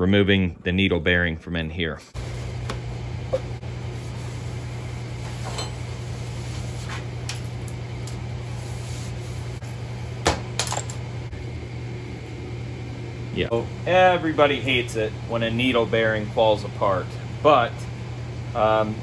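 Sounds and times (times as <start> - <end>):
low machine hum: 0.0 - 19.0.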